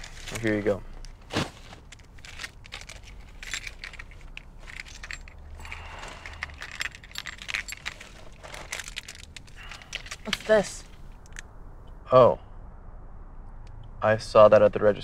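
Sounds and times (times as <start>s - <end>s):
bag rustling: 0.0s - 11.4s.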